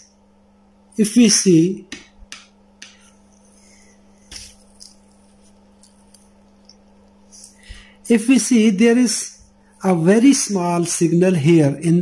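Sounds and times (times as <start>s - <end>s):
gloved hands rustling: 2.3s - 7.8s.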